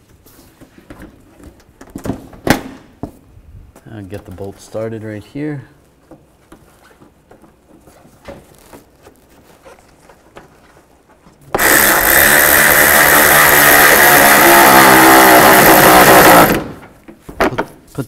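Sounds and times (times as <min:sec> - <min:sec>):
cordless driver running: 0:11.6 - 0:16.8.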